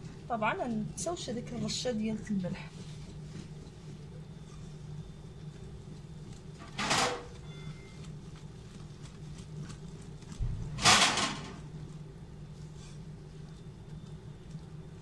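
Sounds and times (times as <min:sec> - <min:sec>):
whisk beating batter: 0:07.3 - 0:10.4.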